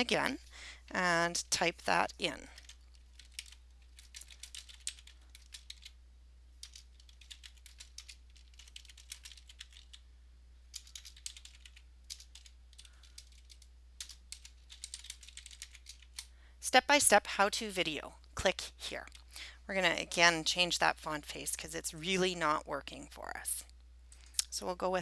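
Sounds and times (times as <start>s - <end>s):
steady low hum: 0.0s - 25.0s
keyboard typing: 2.4s - 6.0s, 6.6s - 10.0s, 10.7s - 16.3s.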